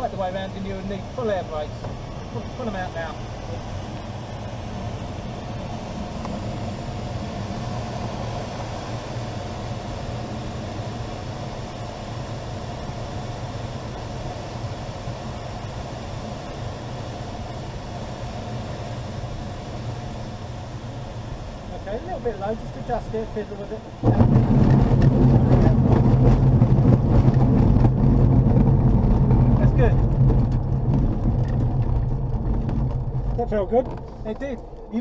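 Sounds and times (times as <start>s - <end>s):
airflow rushing around cockpit: 0.0s - 35.0s.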